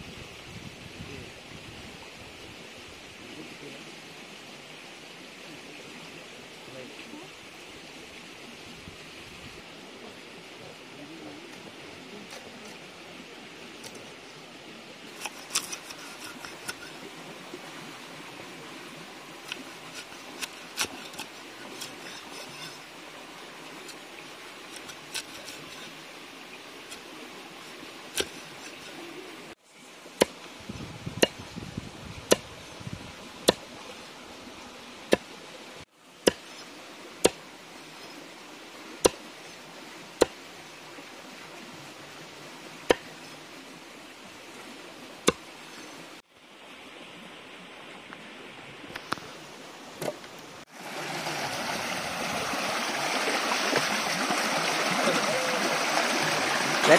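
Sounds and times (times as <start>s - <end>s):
running stream water: 0.0s - 56.9s
cleaver chopping on wooden block: 36.2s - 36.5s, 42.9s - 43.1s.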